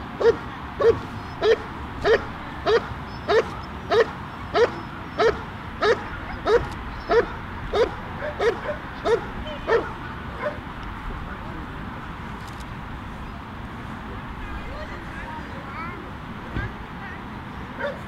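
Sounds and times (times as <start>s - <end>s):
dog barking: 0.2s - 10.6s, 17.8s - 18.0s.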